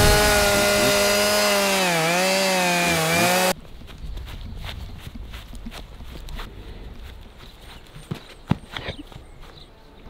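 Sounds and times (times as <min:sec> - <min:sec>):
chainsaw engine running: 0:00.0 - 0:03.6
footsteps on grass: 0:03.2 - 0:10.0.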